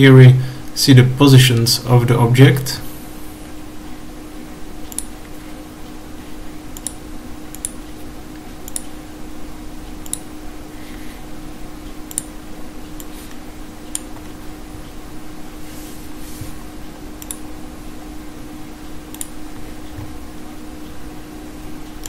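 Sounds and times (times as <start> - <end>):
steady low hum: 0.0 - 22.0
computer mouse clicks: 4.9 - 5.2, 6.8 - 7.8, 8.6 - 8.9, 10.0 - 10.3, 12.1 - 12.3, 17.2 - 17.4, 19.1 - 19.4.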